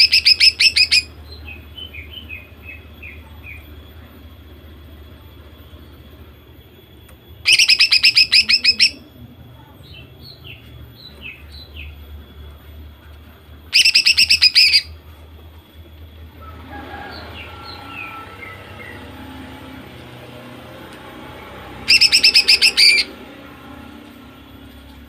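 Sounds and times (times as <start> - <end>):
bird calling rapid repeated notes: 0.0 - 1.1, 7.5 - 9.0, 13.7 - 14.9, 21.8 - 23.2
soft down-slurred bird chirps: 13.7 - 15.0, 21.8 - 23.1.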